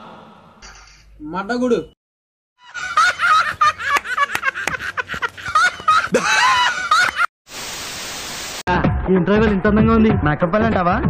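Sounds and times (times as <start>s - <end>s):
men laughing loudly: 2.6s - 7.3s.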